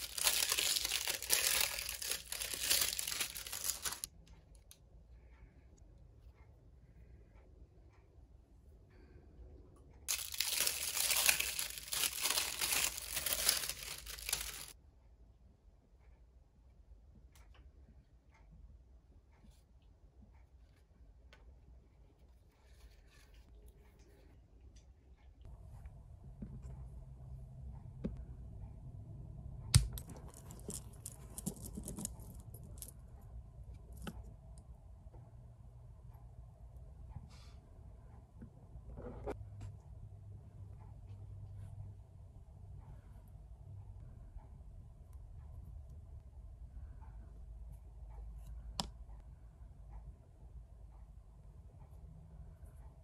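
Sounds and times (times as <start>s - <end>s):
plastic wrap crinkling and tearing: 0.0s - 4.1s, 10.1s - 14.8s.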